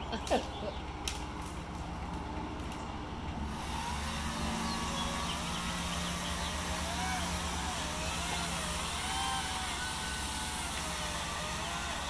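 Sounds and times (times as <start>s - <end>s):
chainsaw cutting wood: 3.4s - 12.0s.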